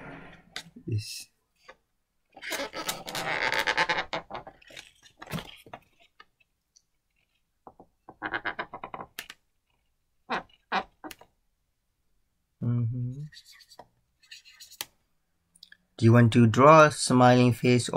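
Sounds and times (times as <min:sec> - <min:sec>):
marker pen squeaking on balloon: 0:02.3 - 0:06.1, 0:08.2 - 0:09.3, 0:10.3 - 0:11.3, 0:13.3 - 0:15.0.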